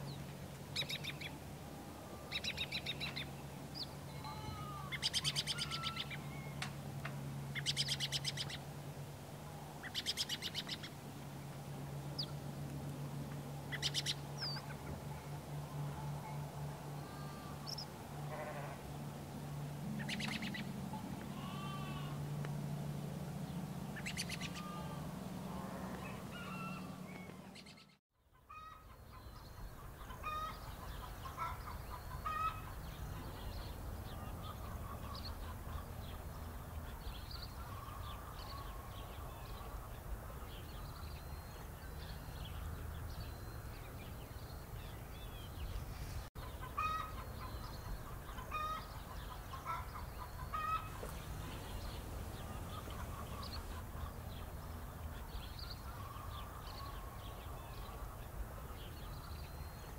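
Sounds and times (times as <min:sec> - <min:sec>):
low hum: 0:00.0 - 0:28.0
birds chirping: 0:02.0 - 0:08.7, 0:13.0 - 0:59.9.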